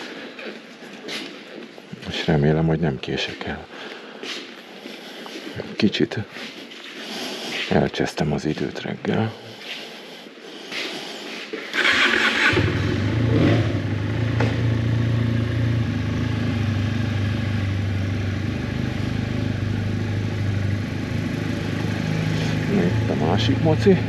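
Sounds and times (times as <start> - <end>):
motorcycle starter cranking: 11.7 - 13.3
motorcycle engine idling: 11.9 - 24.0.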